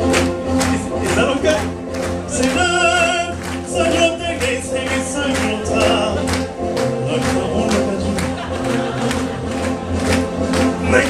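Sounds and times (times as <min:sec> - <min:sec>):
backing music with steady beat: 0:00.0 - 0:11.0
man singing with vibrato: 0:00.6 - 0:08.6, 0:10.8 - 0:11.0.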